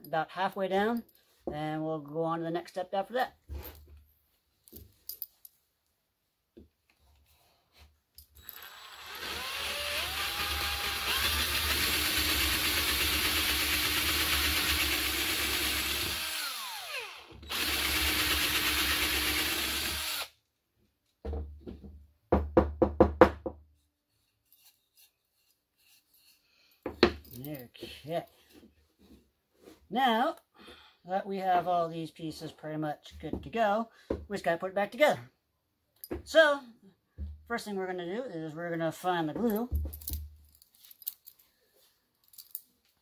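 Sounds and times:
cordless drill boring into wood: 8.4 - 20.4.

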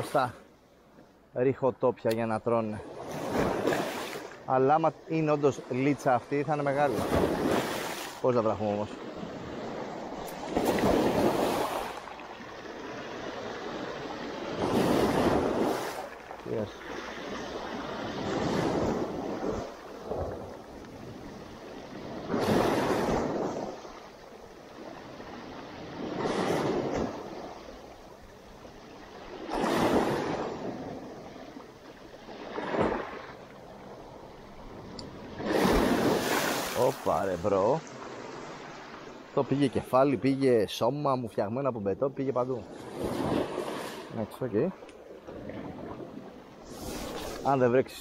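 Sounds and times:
waves washing over rocks: 2.9 - 27.5, 29.1 - 31.1, 34.8 - 39.9.

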